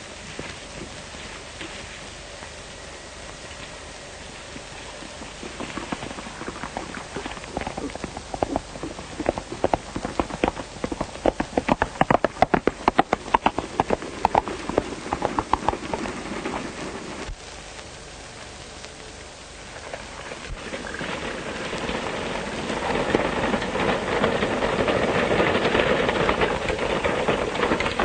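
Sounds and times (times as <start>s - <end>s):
old film soundtrack hiss: 0.0s - 28.0s
horse hoofbeats: 3.2s - 17.4s, 20.2s - 28.0s.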